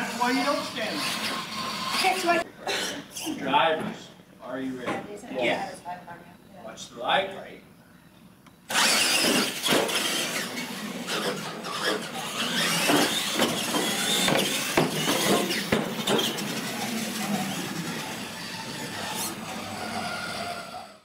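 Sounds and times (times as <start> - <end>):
electric motors whining: 0.0 - 2.5, 8.6 - 21.0
toy trucks knocking and clattering: 8.7 - 21.0.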